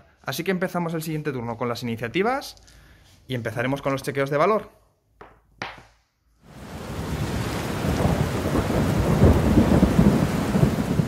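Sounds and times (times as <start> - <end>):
steady rain: 6.4 - 11.0
thunder rumbling: 6.5 - 11.0.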